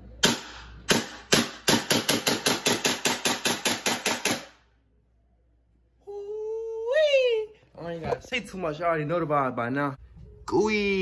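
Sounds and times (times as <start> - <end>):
airsoft pistol shots: 0.2 - 4.6.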